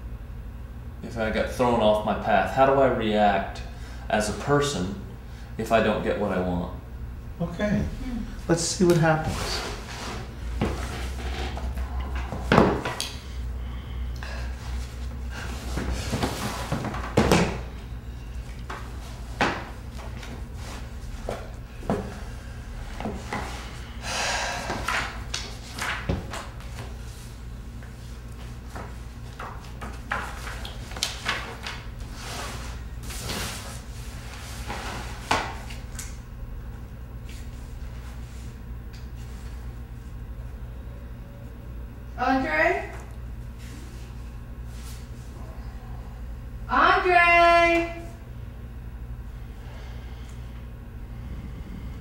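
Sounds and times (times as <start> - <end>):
books knocking on wooden table: 12.3 - 13.0, 15.8 - 17.6, 19.4 - 19.7.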